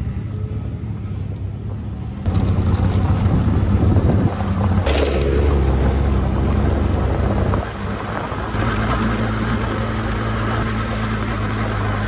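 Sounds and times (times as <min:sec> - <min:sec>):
motorcycle engine running: 0:02.3 - 0:12.0
wind on microphone: 0:02.6 - 0:08.7.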